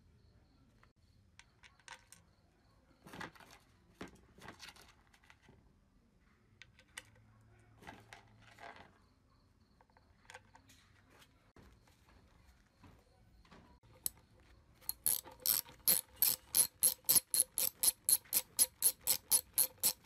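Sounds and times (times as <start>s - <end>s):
metal bolts clicking and scraping: 14.8s - 20.0s.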